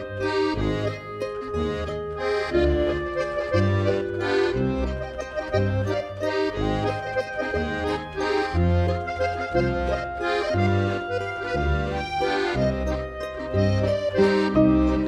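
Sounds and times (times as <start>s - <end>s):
bass line: 0.0s - 15.0s
held chords: 0.0s - 15.0s.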